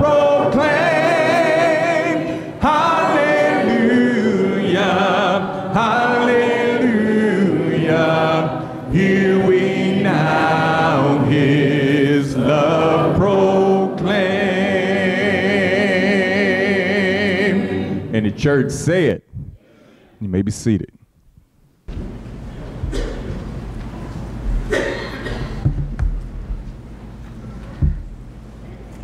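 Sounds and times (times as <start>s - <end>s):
congregation singing a hymn: 0.0s - 18.8s.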